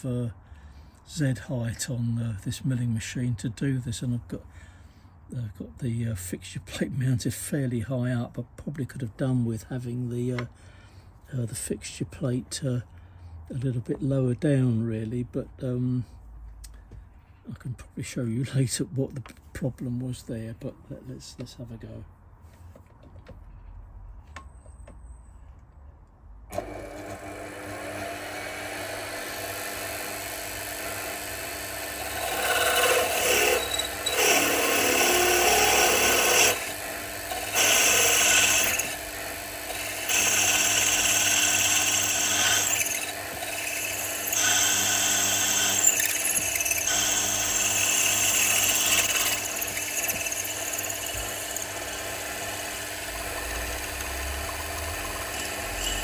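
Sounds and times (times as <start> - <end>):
drill cutting metal: 26.5 - 56.0
milling machine spindle running: 26.5 - 56.0.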